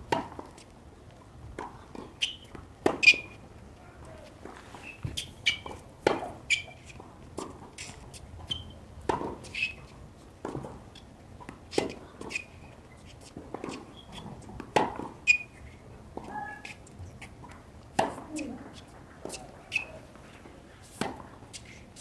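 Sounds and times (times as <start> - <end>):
racket hitting tennis ball: 0.1 - 0.6, 1.5 - 3.4, 4.4 - 9.8, 11.4 - 12.7, 13.3 - 19.9, 20.9 - 22.0
tennis ball bounces: 0.1 - 0.6, 1.5 - 3.4, 4.2 - 19.9
shoes squeaking on court: 1.8 - 22.0.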